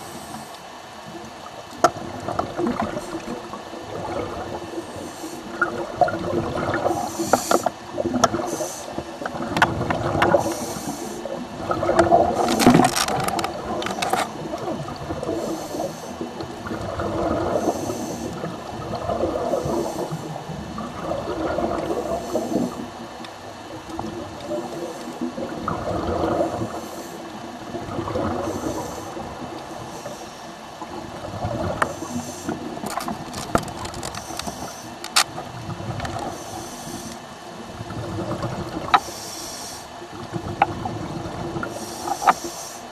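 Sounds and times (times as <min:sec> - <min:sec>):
regulator breathing hiss: 0:00.0 - 0:00.7, 0:04.8 - 0:05.6, 0:06.8 - 0:07.8, 0:08.4 - 0:09.2, 0:10.3 - 0:11.4, 0:15.3 - 0:16.3, 0:17.5 - 0:18.5, 0:19.5 - 0:20.4, 0:22.0 - 0:22.9, 0:26.6 - 0:27.4, 0:28.4 - 0:30.6, 0:31.9 - 0:32.8, 0:34.2 - 0:35.3, 0:36.2 - 0:37.4, 0:39.0 - 0:40.0, 0:41.6 - 0:42.9
gurgling bubbles: 0:01.1 - 0:30.2, 0:30.8 - 0:39.2, 0:40.0 - 0:42.4.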